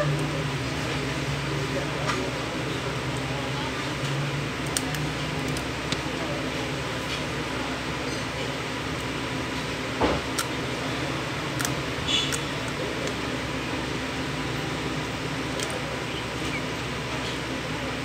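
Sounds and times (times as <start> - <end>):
mechanical hum: 0.0 - 18.0.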